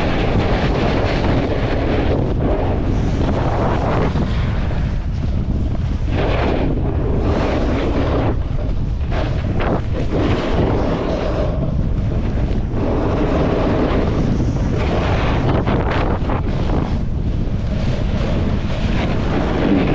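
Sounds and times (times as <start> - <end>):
wind buffeting microphone: 0.0 - 19.9.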